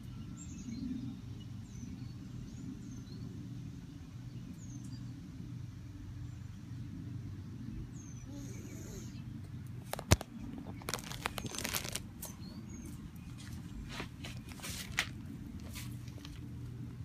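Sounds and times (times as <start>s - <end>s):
low background hum: 0.0s - 17.0s
clicks and crunches of chewing: 9.8s - 12.4s.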